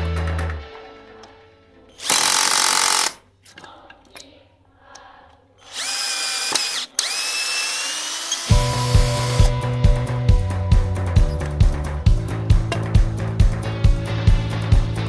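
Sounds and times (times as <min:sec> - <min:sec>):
background music: 0:00.0 - 0:04.7, 0:08.4 - 0:15.0
cordless drill driving screws: 0:02.0 - 0:03.2, 0:05.6 - 0:09.5.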